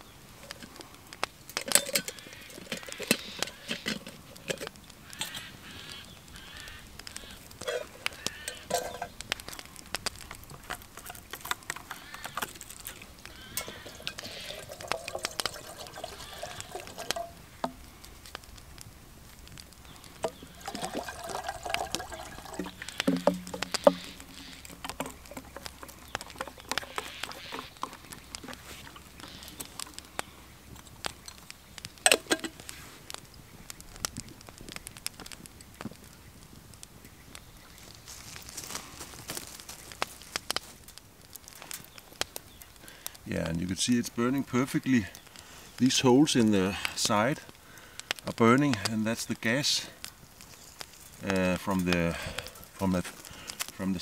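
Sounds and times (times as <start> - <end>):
camp gear clicking and knocking: 1.5 - 4.8, 7.6 - 9.2, 10.5 - 17.8, 20.2 - 30.0, 32.0 - 32.6
water being poured: 12.8 - 17.8, 20.2 - 29.4.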